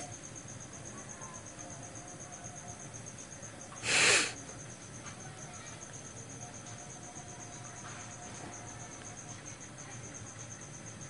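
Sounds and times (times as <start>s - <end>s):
crickets chirping: 0.0s - 11.0s
burst of hissing noise: 3.8s - 4.4s.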